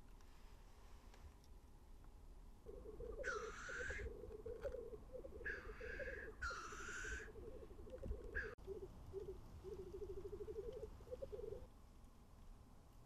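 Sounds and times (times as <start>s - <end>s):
grouse bubbling coo: 2.7s - 11.7s.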